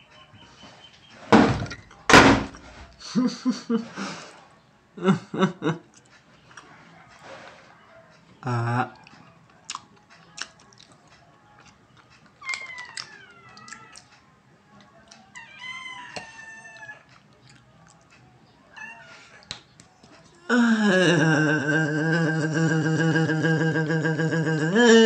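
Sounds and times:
faint chewing and clicks: 0:05.9 - 0:06.7, 0:08.1 - 0:15.4, 0:16.2 - 0:18.4
cat meowing: 0:12.4 - 0:14.0, 0:15.4 - 0:17.1, 0:18.7 - 0:19.4
low vocal grunt: 0:20.5 - 0:25.0.

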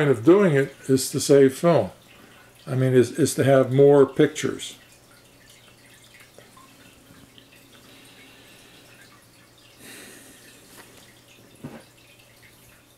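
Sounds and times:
low steady hum: 0:00.0 - 0:12.9.

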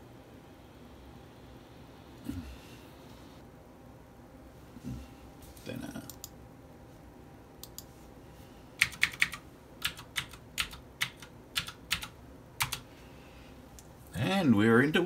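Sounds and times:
computer keyboard keys pressed: 0:08.8 - 0:12.8.

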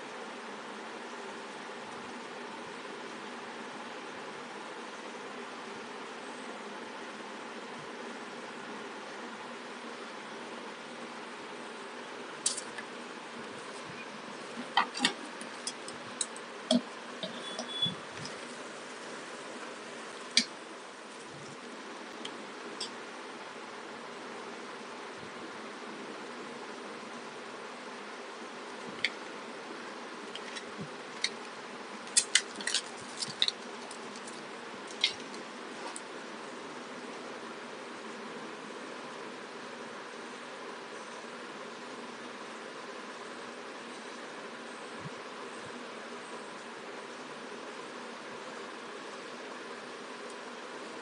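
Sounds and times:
steady hiss: 0:00.0 - 0:51.0
plastic packaging crinkling: 0:32.1 - 0:35.4.

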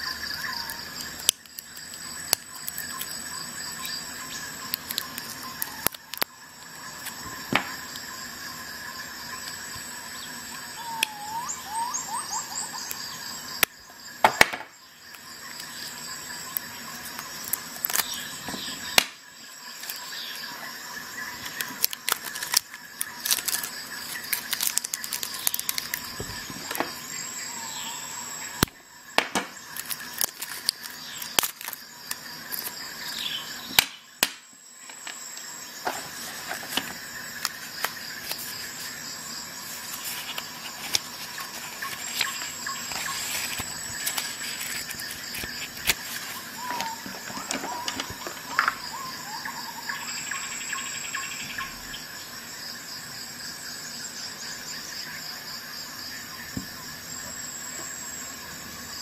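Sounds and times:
plastic wrap crinkling: 0:21.4 - 0:26.8, 0:29.7 - 0:32.7, 0:39.8 - 0:48.3.

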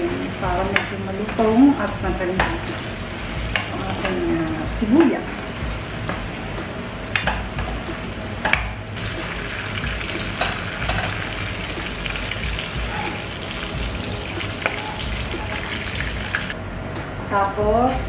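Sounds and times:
onions sizzling in oil: 0:00.0 - 0:16.6
spatula knocking pan: 0:09.8 - 0:11.2
spatula scraping pan: 0:12.7 - 0:13.4.

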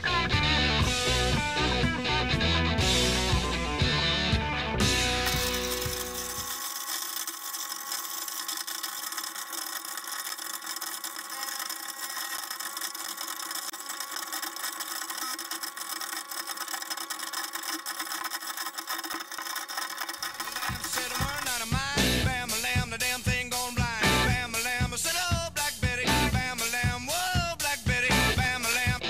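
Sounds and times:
garbage disposal motor hum: 0:02.4 - 0:22.4.

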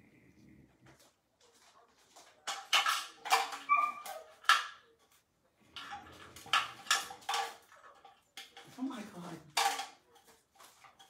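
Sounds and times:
puppies yipping and barking: 0:03.3 - 0:04.5
puppy whining: 0:03.4 - 0:04.4.

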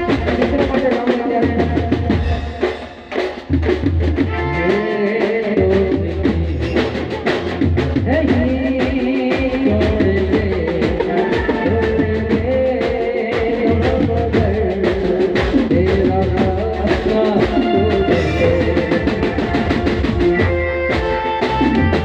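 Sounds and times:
man singing: 0:00.0 - 0:02.7, 0:04.3 - 0:07.2, 0:08.1 - 0:19.8
drum kit beat: 0:00.0 - 0:22.0
live band music: 0:00.0 - 0:22.0.

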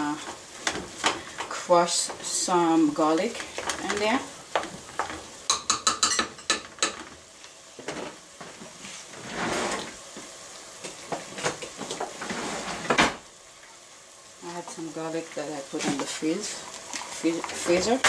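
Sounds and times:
faint sizzle: 0:00.0 - 0:18.0
wooden spoon scraping a pot: 0:08.8 - 0:10.0, 0:11.8 - 0:13.0.

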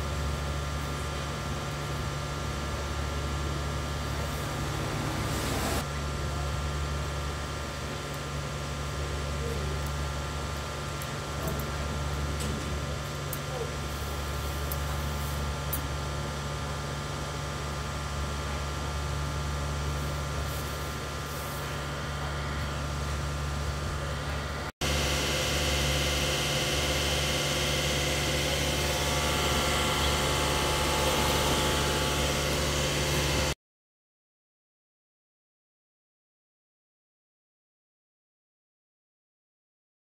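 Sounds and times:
low hum: 0:21.9 - 0:33.6.

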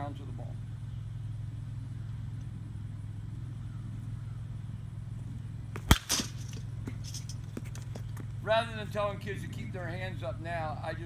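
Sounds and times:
steady low hum: 0:00.0 - 0:11.0
metal bat hitting ball: 0:05.8 - 0:07.2.

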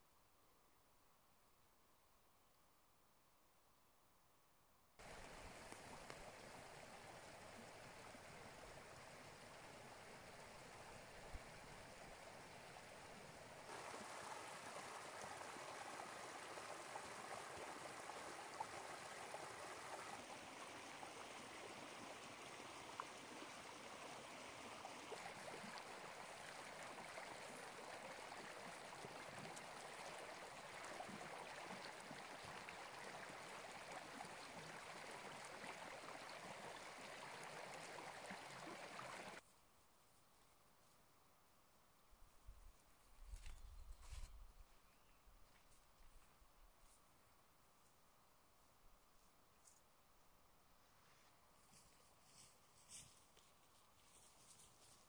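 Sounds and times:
brook babbling over stones: 0:05.0 - 0:39.4.

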